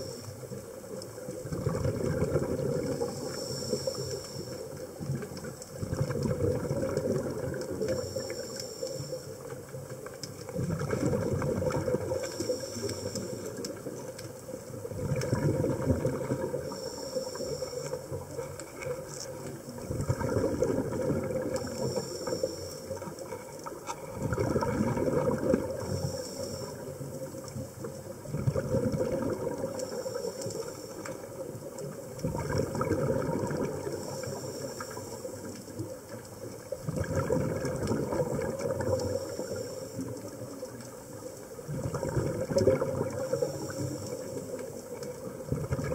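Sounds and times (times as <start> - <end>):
regulator inhale hiss: 0.0 - 1.3, 2.2 - 5.8, 7.0 - 10.5, 11.9 - 14.8, 16.1 - 19.7, 21.3 - 23.9, 25.7 - 28.2, 29.6 - 32.2, 33.7 - 36.7, 38.9 - 41.6, 43.1 - 45.4
exhaled bubbles gurgling: 0.0 - 45.9.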